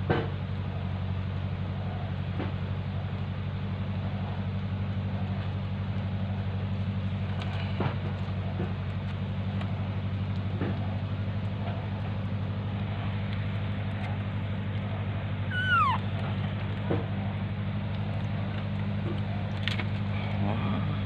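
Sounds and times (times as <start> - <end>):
low mechanical hum: 0.0 - 21.0
high animal cry: 15.4 - 16.2.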